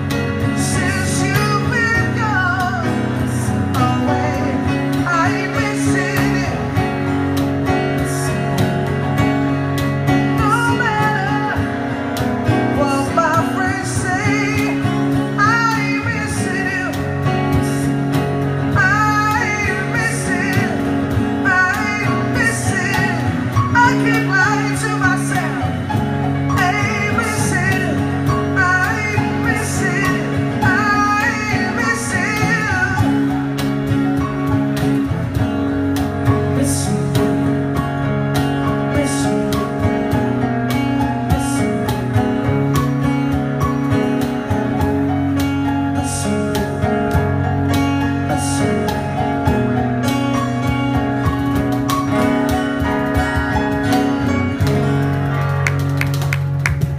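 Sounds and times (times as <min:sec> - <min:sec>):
person singing: 0:00.0 - 0:08.7, 0:10.2 - 0:33.7, 0:36.2 - 0:40.2
acoustic band playing slow song: 0:00.0 - 0:56.9.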